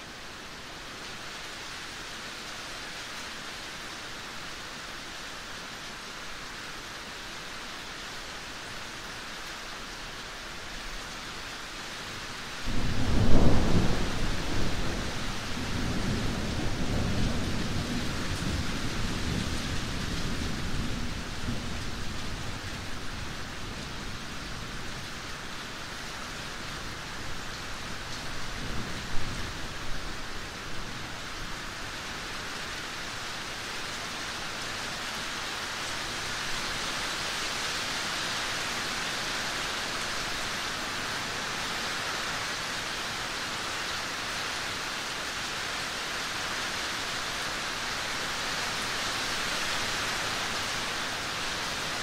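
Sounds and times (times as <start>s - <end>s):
steady rain: 0.0s - 52.0s
thunder rumbling: 12.7s - 21.7s.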